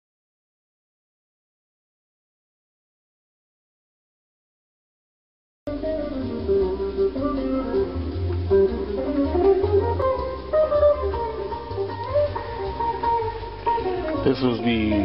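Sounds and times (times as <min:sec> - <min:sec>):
instrumental background music: 0:05.7 - 0:15.0.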